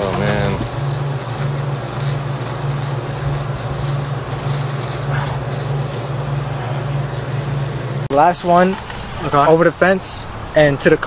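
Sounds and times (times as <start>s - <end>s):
plastic bags crinkling: 0.0s - 7.7s
pulsing low machine hum: 0.0s - 8.1s.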